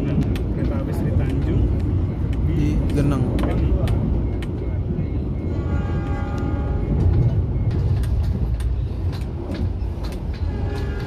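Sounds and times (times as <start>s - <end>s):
train rumble: 0.0s - 11.0s.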